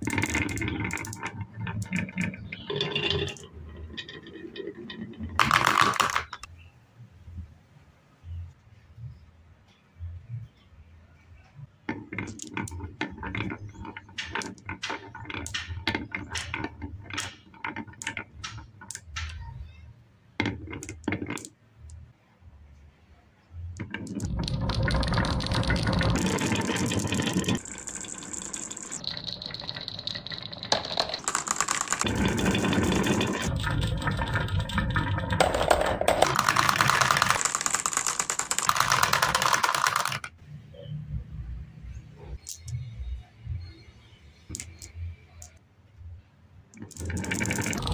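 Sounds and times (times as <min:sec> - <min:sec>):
marbles clicking on wood: 0:00.0 - 0:06.5, 0:11.9 - 0:19.6, 0:20.4 - 0:22.0, 0:23.8 - 0:40.3, 0:44.5 - 0:45.6, 0:46.7 - 0:47.9.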